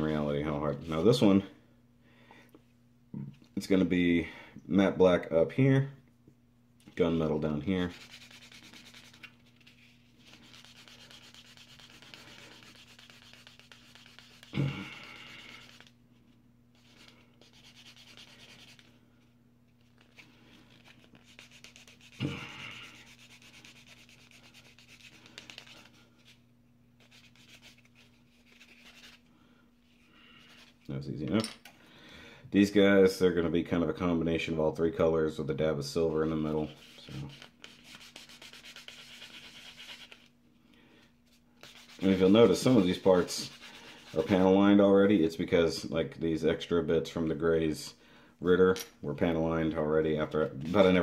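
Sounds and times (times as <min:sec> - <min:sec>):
buffing block sanding plastic: 0:07.7 - 0:14.5, 0:36.2 - 0:40.3, 0:41.6 - 0:44.6.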